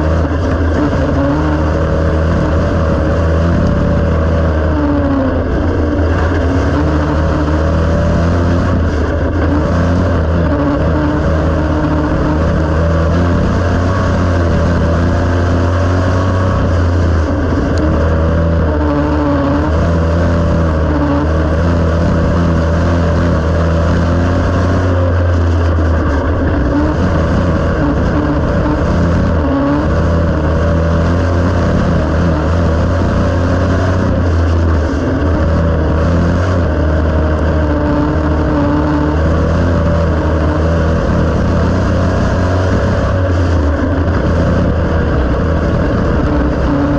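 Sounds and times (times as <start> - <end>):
race car engine running hard: 0.0 - 46.9.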